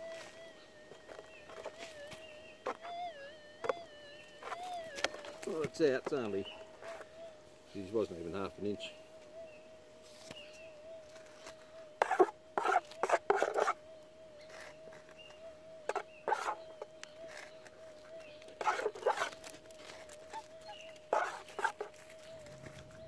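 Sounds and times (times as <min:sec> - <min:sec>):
metal detector hum: 0:00.0 - 0:09.0, 0:10.3 - 0:23.0
scoop scraping gravelly soil: 0:18.6 - 0:23.0.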